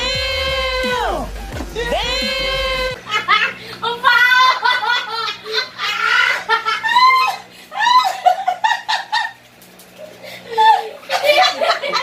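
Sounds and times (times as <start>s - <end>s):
hearty laughter: 3.0s - 9.4s, 10.3s - 12.0s.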